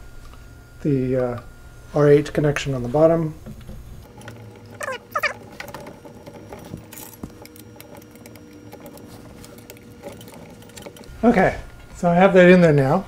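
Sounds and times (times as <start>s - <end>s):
metal parts clicking and tapping: 4.0s - 11.2s
short squeaks: 4.2s - 11.2s.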